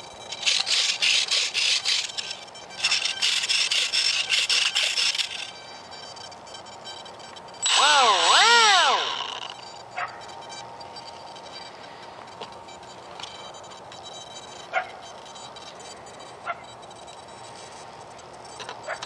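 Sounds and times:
small electric motor whirring: 0:00.0 - 0:05.6, 0:07.1 - 0:09.8
loud wavering whine: 0:00.0 - 0:19.0.

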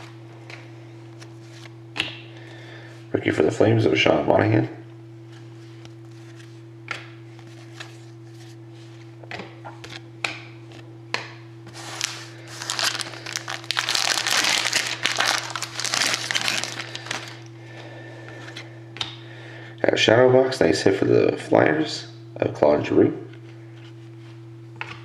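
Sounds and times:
faint steady hum: 0:00.0 - 0:25.0
foil wrapper crinkling and tearing: 0:11.7 - 0:17.5.

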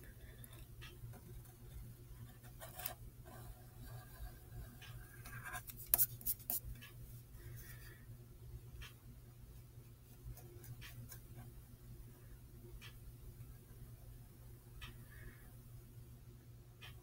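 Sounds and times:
pencil scratching on paper: 0:01.1 - 0:06.7.

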